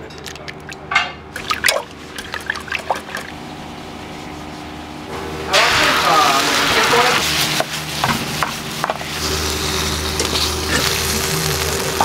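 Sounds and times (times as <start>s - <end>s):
egg sizzling on hot platter: 5.6s - 12.0s.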